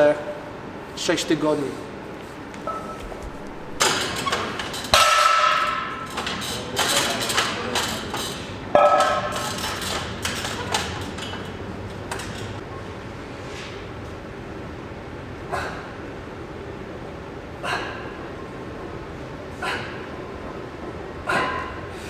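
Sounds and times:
gym weights clanking: 3.6 - 12.6, 19.6 - 22.0
loud ringing metal clangs: 3.8 - 12.6.

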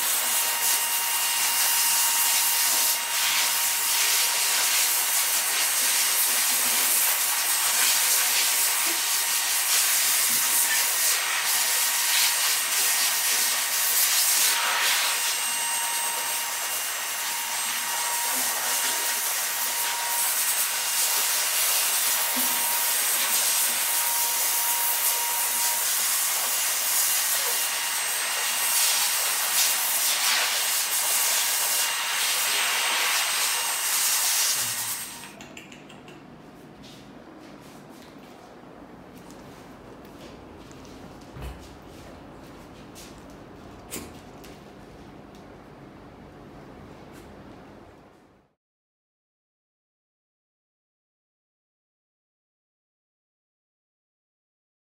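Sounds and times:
grooming scissors snipping: 35.2 - 36.3.

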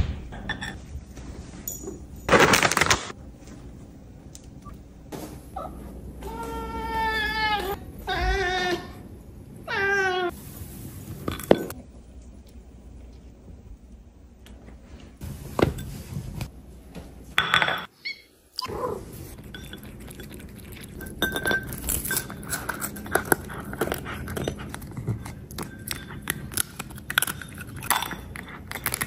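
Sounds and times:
cats chewing and licking: 19.0 - 29.0
clinks against ceramic plate: 21.0 - 22.9.

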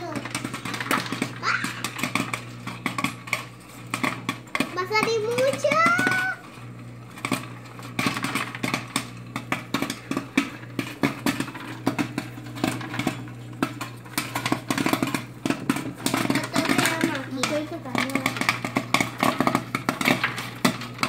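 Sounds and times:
popcorn machine hum: 0.0 - 21.0
popcorn popping: 0.0 - 21.0.

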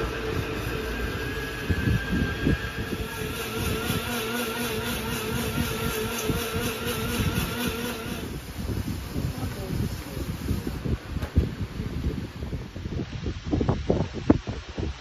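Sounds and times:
motor humming: 0.0 - 10.3.

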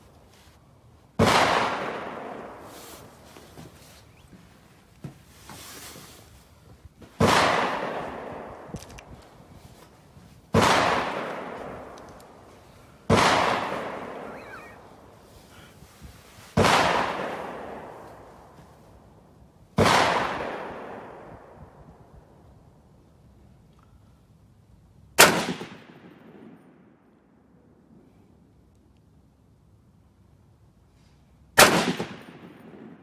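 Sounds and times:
rifle shots echoing: 1.2 - 2.7, 7.2 - 8.7, 10.5 - 12.4, 13.1 - 14.9, 16.6 - 18.3, 19.8 - 21.3, 25.2 - 26.8, 31.6 - 33.0.

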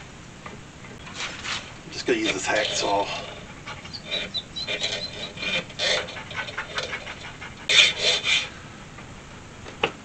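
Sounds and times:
hacksaw cutting metal: 4.0 - 7.0, 7.7 - 8.5.

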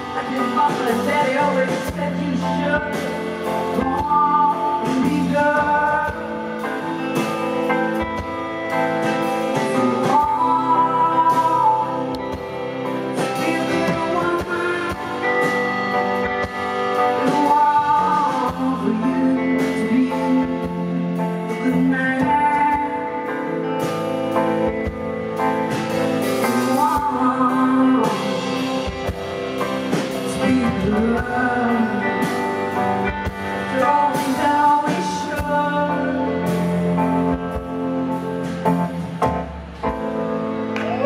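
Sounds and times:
woman singing: 0.0 - 7.2, 9.6 - 23.8, 26.4 - 29.4, 30.0 - 36.9
live band playing: 0.0 - 41.0.

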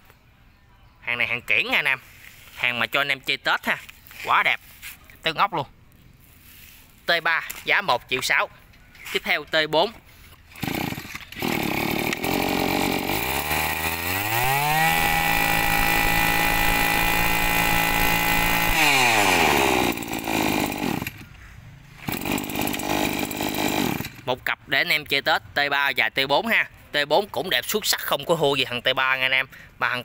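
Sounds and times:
brush cutter engine revving: 9.6 - 24.4.

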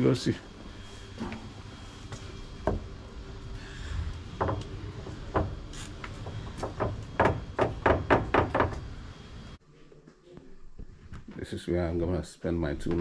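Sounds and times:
knocks on wooden door: 4.4 - 4.6, 6.6 - 8.8.

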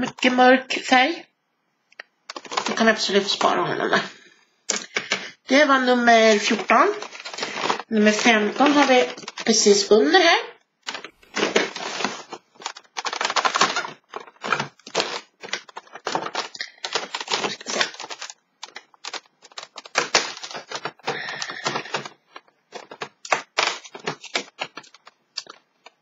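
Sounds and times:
cardboard crackling and rustling: 2.3 - 3.6, 6.1 - 9.8, 10.8 - 26.0.

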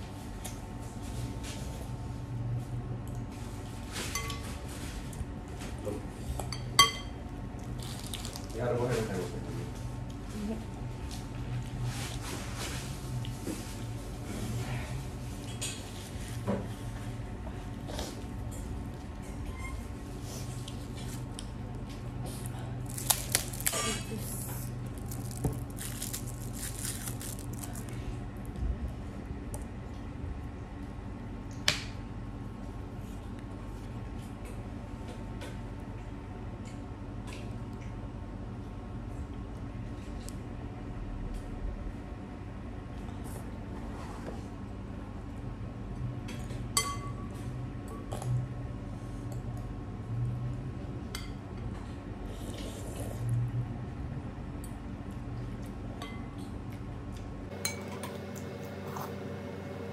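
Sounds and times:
steady low hum: 0.0 - 59.9
fork clinking against glass bowl: 6.5 - 7.1.

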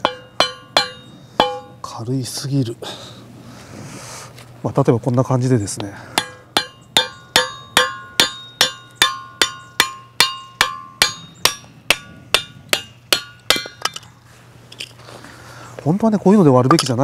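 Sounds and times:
hammer blows with metallic ring: 0.0 - 1.9, 6.1 - 14.0.

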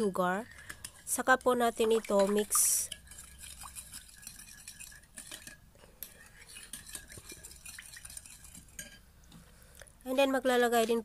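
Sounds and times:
metal spoon stirring in glass bowl: 0.4 - 9.0.

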